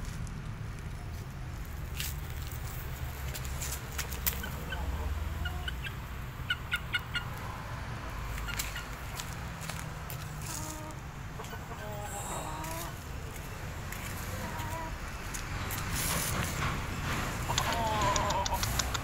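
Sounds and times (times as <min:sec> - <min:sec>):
chickens clucking: 0:03.9 - 0:19.0
sharp click: 0:17.5 - 0:19.0.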